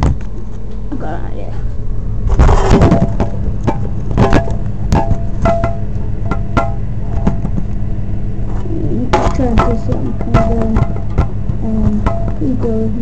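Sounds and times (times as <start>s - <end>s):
hard objects knocking and clicking: 2.4s - 7.9s, 9.1s - 12.6s.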